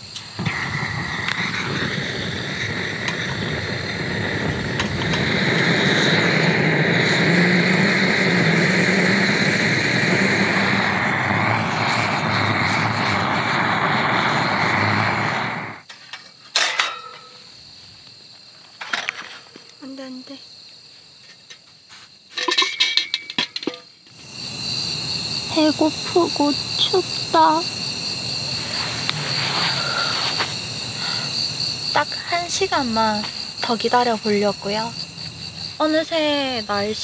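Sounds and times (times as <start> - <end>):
butane torch rushing: 0.0 - 15.9, 24.1 - 36.0
metallic clank of grill grate: 15.9 - 17.4, 22.4 - 23.9.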